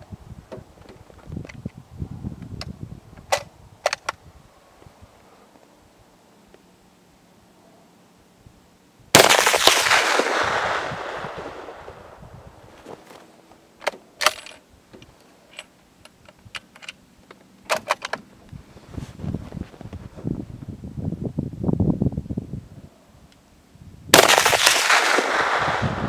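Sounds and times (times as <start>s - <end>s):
rifle shot: 9.2s - 12.2s, 24.1s - 26.0s.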